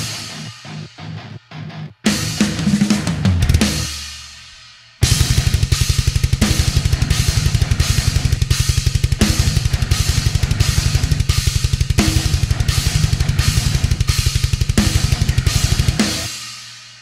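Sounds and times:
rock drum kit: 0.0s - 17.0s
fast double-kick bass drum: 5.0s - 16.3s.

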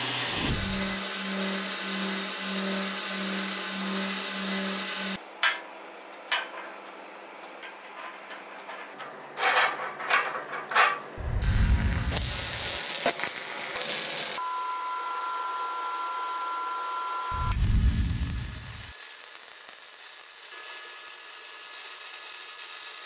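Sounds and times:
thin whine: 0.0s - 5.2s, 14.4s - 19.3s
welding arc crackling and hissing: 0.0s - 5.2s, 11.2s - 14.4s, 17.3s - 23.0s
steel parts clinking: 7.6s - 11.2s.

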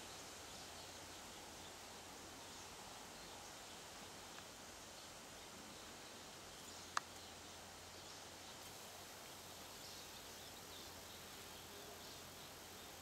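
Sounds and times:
faint outdoor background noise: 0.0s - 13.0s.

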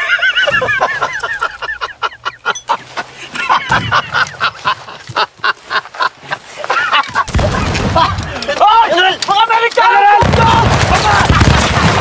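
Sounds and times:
man laughing heartily: 0.0s - 7.4s.

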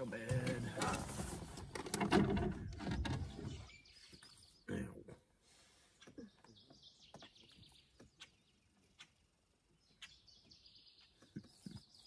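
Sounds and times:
faint bird chirping: 2.6s - 12.0s.

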